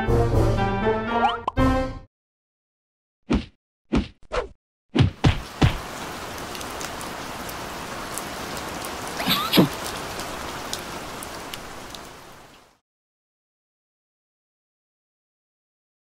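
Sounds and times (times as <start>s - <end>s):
heavy rain: 5.2s - 12.8s.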